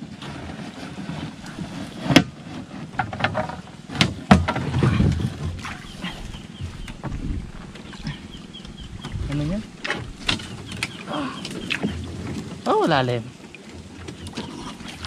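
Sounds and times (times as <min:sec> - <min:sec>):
water sloshing and splashing: 0:00.0 - 0:15.0
knocks on canoe hull: 0:03.0 - 0:05.8.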